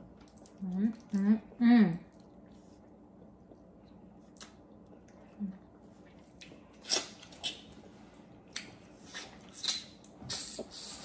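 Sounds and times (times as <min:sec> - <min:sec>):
wet mouth clicks and smacks: 0:08.5 - 0:11.0.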